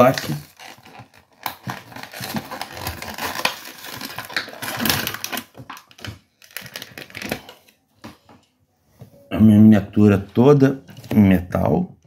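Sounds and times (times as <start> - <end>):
plastic packaging torn open: 0.0 - 7.6.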